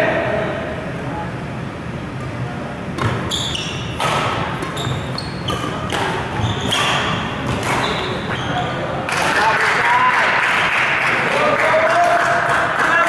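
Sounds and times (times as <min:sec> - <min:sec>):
racket hitting shuttlecock: 0:03.0 - 0:08.1
sneakers squeaking on court: 0:03.0 - 0:09.0.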